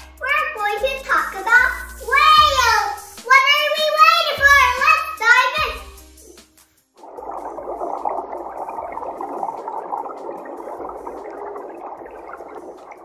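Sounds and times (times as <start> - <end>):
whale sound underwater: 7.0 - 13.0.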